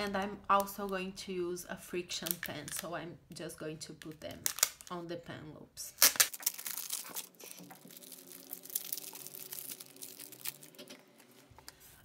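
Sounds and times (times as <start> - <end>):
plastic bag crinkling: 6.0 - 11.4.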